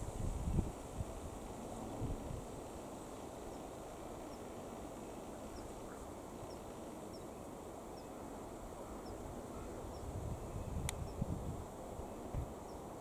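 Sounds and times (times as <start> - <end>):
wind on microphone: 0.0 - 2.6, 9.6 - 12.7.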